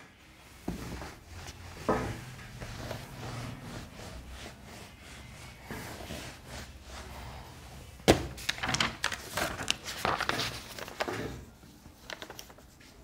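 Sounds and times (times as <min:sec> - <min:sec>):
paper rustling and clicking: 0:08.1 - 0:13.0.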